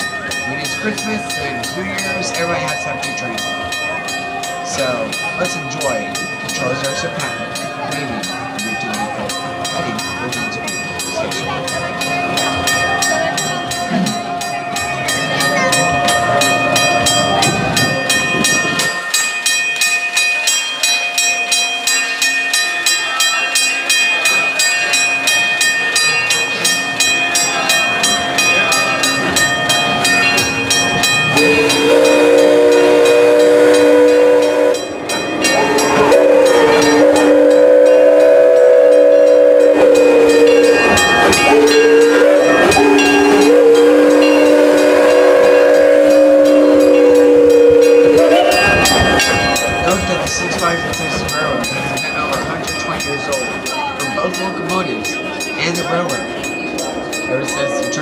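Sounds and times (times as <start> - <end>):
steam locomotive chuffing: 0.0 - 58.0
multi-tone train whistle: 31.3 - 49.8.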